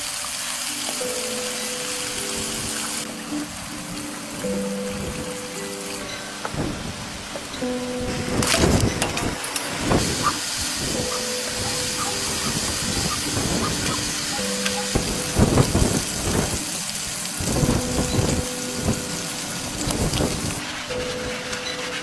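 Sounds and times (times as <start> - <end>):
chicken sizzling in hot oil: 0.0 - 3.2, 9.9 - 22.0
held musical tones: 0.0 - 22.0.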